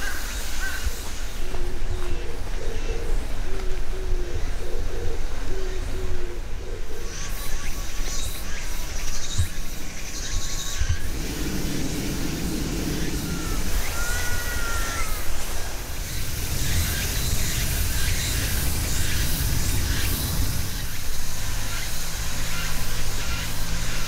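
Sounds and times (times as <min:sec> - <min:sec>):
bird calls: 0:02.0 - 0:24.0
steady high hiss: 0:07.0 - 0:24.0
low rumble: 0:10.9 - 0:21.3.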